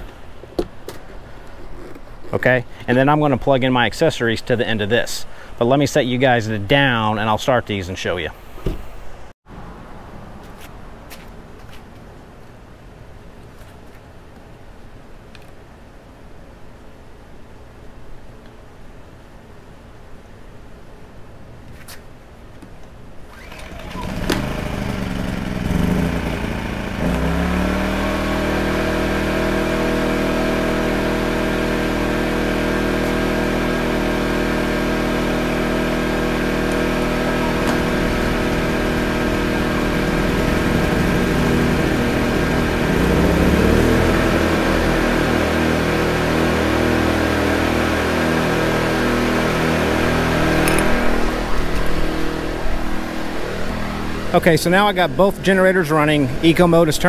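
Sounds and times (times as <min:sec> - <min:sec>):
generators running: 0:23.2 - 0:57.0.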